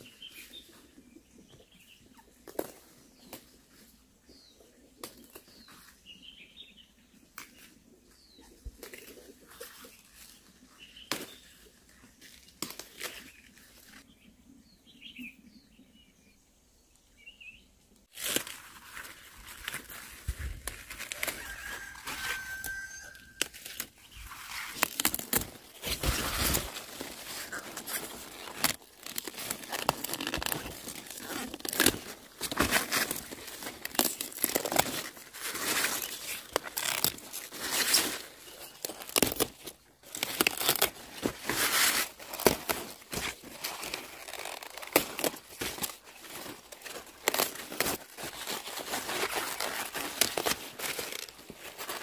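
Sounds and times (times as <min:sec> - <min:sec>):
leaves snapping and tearing: 0:12.2 - 0:14.0, 0:18.1 - 0:52.0.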